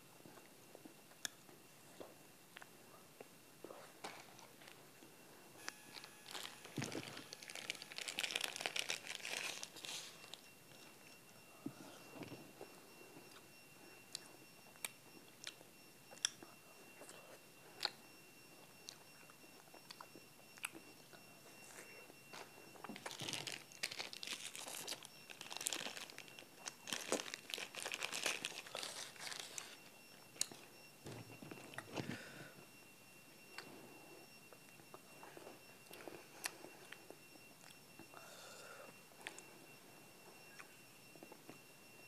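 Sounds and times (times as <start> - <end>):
plastic wrapper crinkling: 5.9 - 10.4, 23.0 - 29.8.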